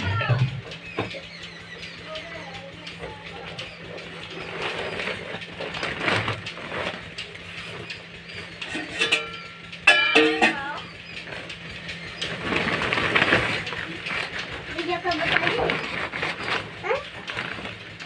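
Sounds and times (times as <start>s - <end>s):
plastic sack rustling: 4.4s - 7.8s, 12.2s - 18.0s.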